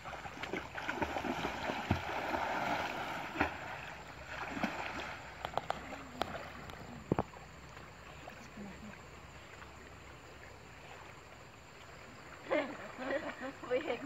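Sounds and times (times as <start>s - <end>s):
sharp water slaps: 0.0s - 7.8s
river water splashing: 0.0s - 14.0s.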